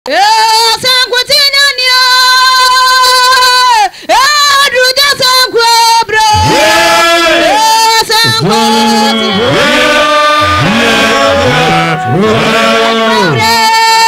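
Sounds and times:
high solo voice singing: 6.2 - 14.0.

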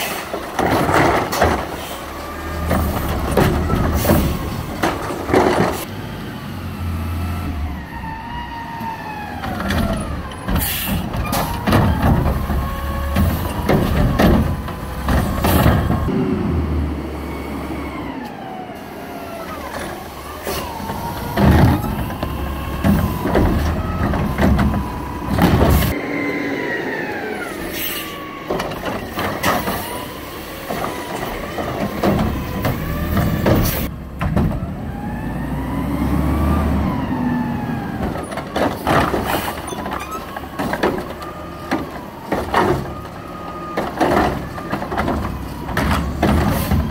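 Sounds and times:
carts clanking: 0.0 - 5.9, 9.4 - 16.1, 19.5 - 34.7, 37.8 - 46.9
diesel engine revving: 0.0 - 46.9
air brake hisses: 27.6 - 28.3.

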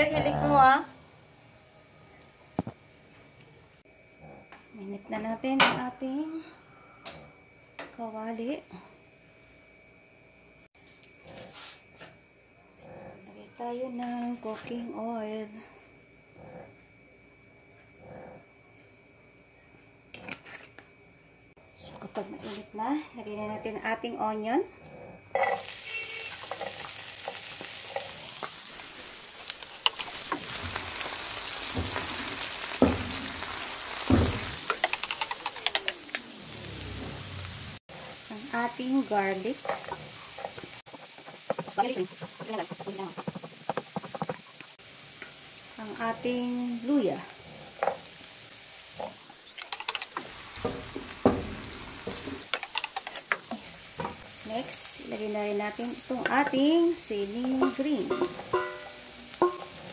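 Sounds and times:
onion sizzling in oil: 25.4 - 59.9
knocks on pan: 34.1 - 35.1, 50.6 - 52.4, 57.6 - 59.7
utensil clicking and scraping pan: 34.5 - 36.2, 39.6 - 44.7, 49.0 - 51.0, 52.1 - 54.2
wooden spatula scraping pan: 38.0 - 44.7.

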